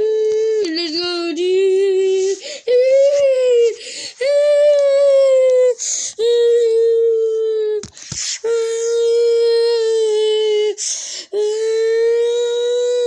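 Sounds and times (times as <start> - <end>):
child singing ooh notes: 0.0 - 7.8, 8.4 - 13.0
child breathing: 2.0 - 4.6, 5.7 - 6.4, 8.0 - 9.1, 10.3 - 12.0.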